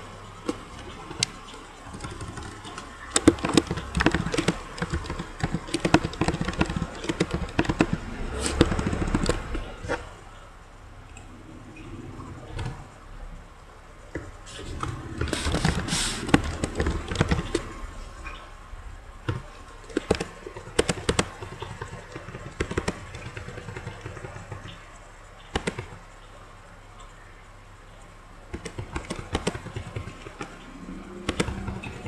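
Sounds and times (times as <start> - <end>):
keyboard typing: 0.0 - 10.0, 14.1 - 17.8, 19.2 - 24.8, 25.4 - 26.0, 28.5 - 32.0.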